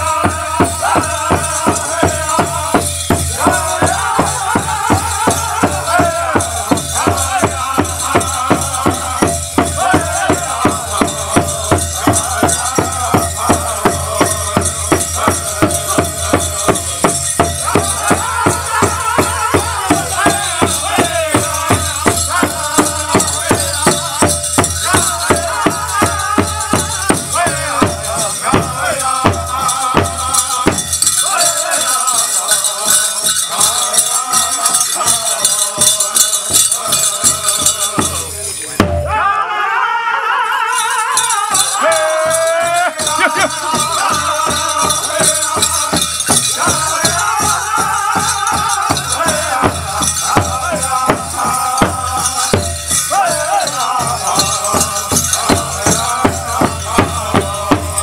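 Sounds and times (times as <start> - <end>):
bells jingling: 0.0 - 39.2, 40.5 - 58.0
steady drumbeat: 0.0 - 39.4, 40.8 - 58.0
high wavering voices singing: 0.0 - 58.0.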